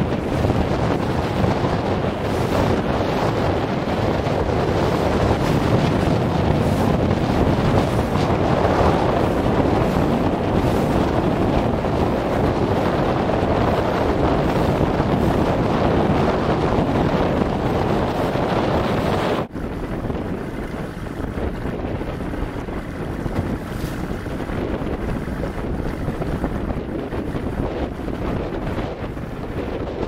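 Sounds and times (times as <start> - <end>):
water rushing along hull: 0.0 - 30.0
wind buffeting microphone: 0.0 - 30.0.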